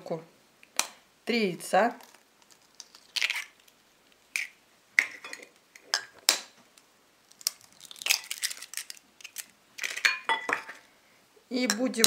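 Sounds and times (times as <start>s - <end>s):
eggshell pried apart: 2.0s - 3.7s, 7.3s - 10.1s.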